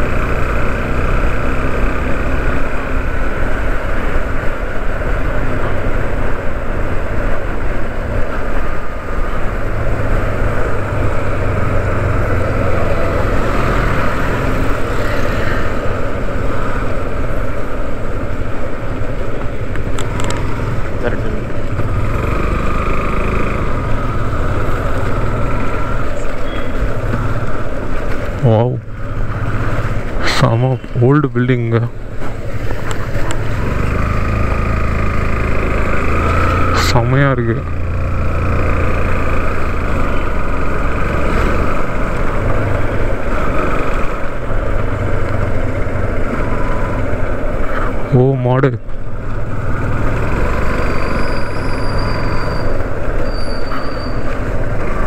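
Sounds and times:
motorcycle engine: 0.0s - 55.0s.

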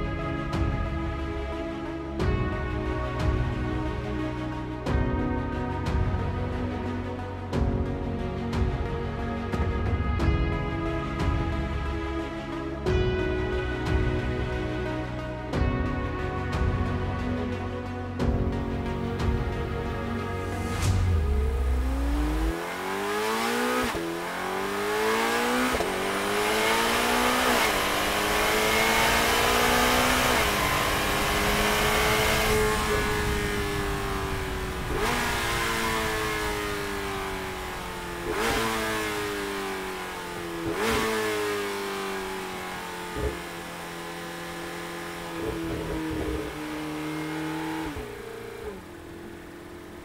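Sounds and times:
sports car engine accelerating: 20.1s - 50.0s.

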